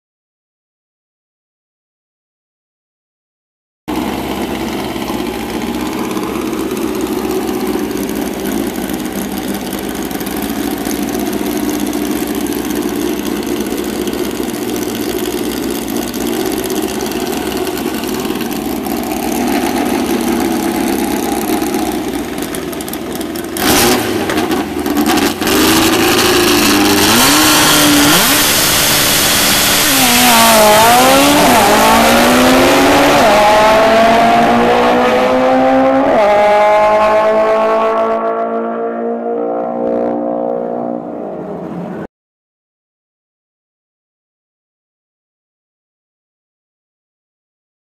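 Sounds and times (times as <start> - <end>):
loud throttle blasts: 3.9 - 42.0
drag racing engines: 3.9 - 42.1.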